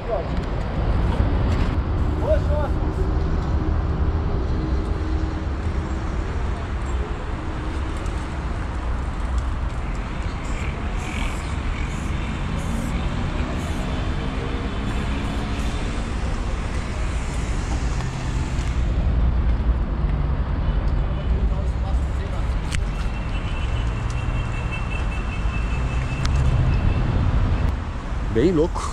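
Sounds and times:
urban traffic noise: 0.0 - 28.9
spray-paint can hissing: 11.3 - 13.0, 13.6 - 13.9.

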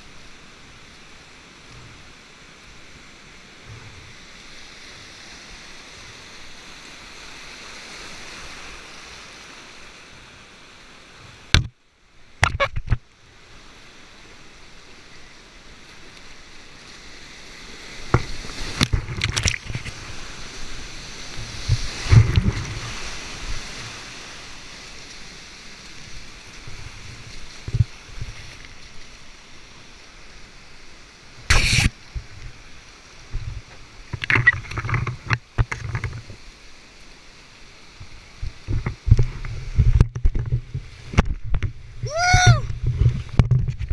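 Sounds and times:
water splashing on boat: 16.8 - 29.6
whitewater rushing: 41.8 - 42.8.

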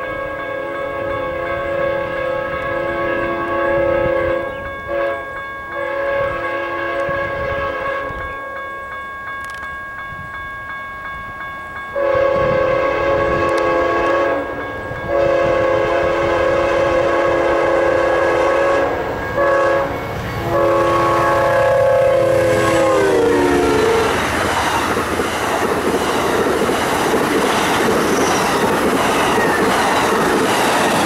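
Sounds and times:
locomotive air horn blasts: 0.0 - 8.6, 12.0 - 24.4
passing train rumble: 0.0 - 31.0.

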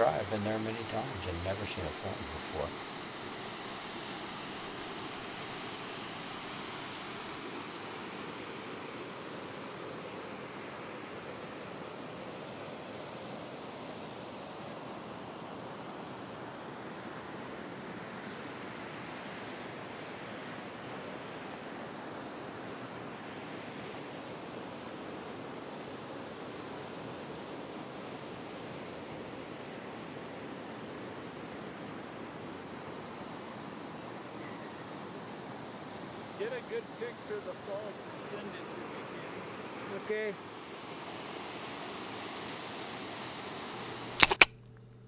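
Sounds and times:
waterfall rushing: 0.0 - 8.0.

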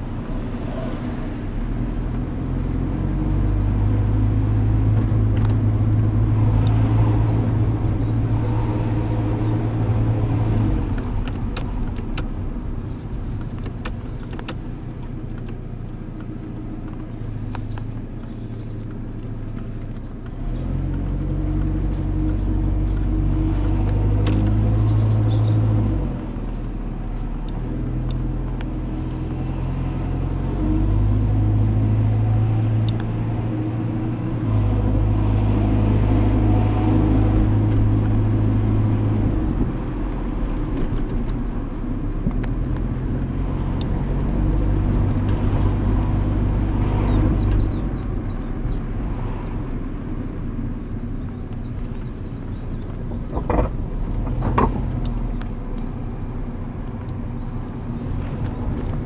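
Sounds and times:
car engine inside cabin: 0.0 - 59.0.

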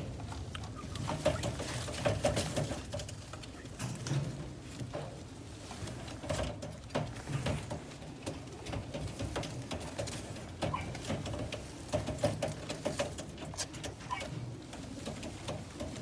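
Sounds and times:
pigeons cooing: 0.0 - 2.6, 7.3 - 16.0
sharp clicks and scratches: 5.8 - 16.0.

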